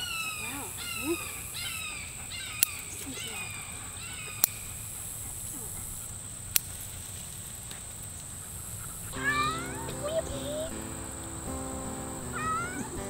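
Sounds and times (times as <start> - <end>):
insects droning: 0.0 - 13.0
sharp clicks: 2.4 - 5.1, 6.3 - 8.3
music: 9.2 - 13.0.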